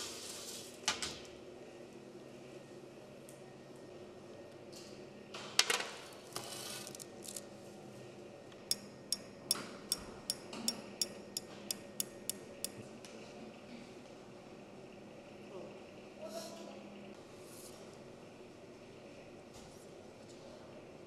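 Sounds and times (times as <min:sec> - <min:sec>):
sugar sifter clicking: 0:08.7 - 0:12.8.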